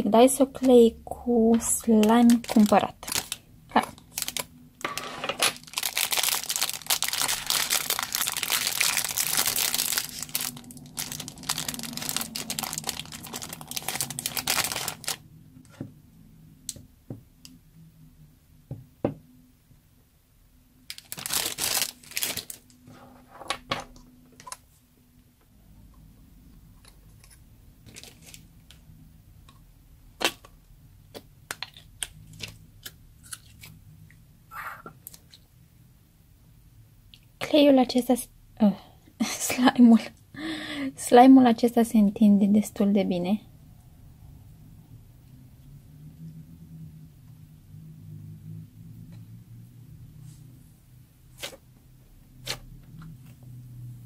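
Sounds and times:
cellophane crinkling and tearing: 1.9 - 15.3, 20.9 - 22.8, 27.2 - 28.6, 31.5 - 33.7.

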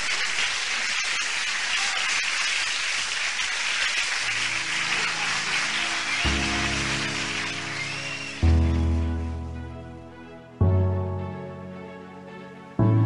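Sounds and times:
audience applause: 0.0 - 9.5
music: 4.2 - 13.0.

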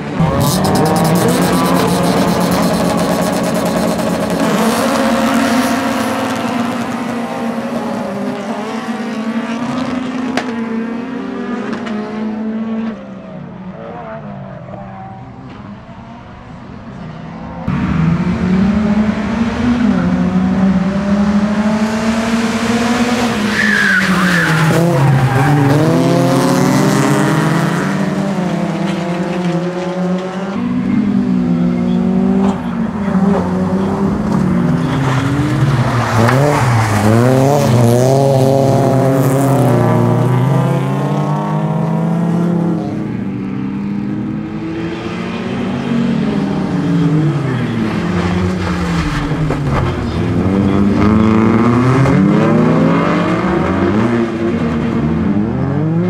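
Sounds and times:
race car engines revving: 0.0 - 56.0
tyre squeal: 23.5 - 26.2.

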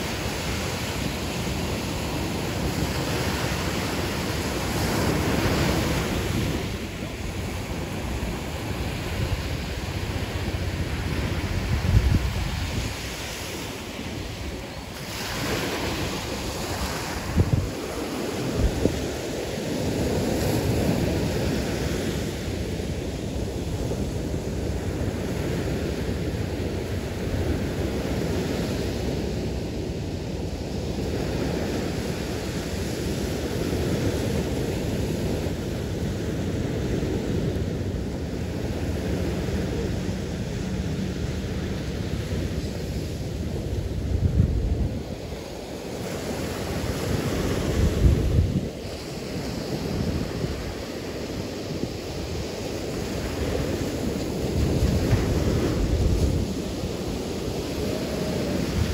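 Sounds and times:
surf breaking on a beach: 0.0 - 58.9
wind buffeting microphone: 0.0 - 58.9.

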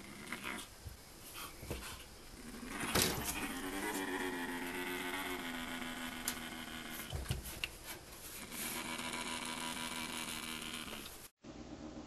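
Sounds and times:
animal growling low: 2.4 - 7.1.

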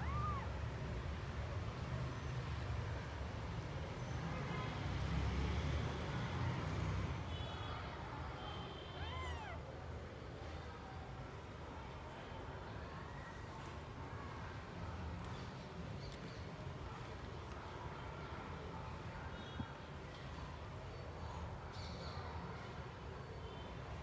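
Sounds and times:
kittens mewing: 0.0 - 0.6, 8.9 - 9.7.

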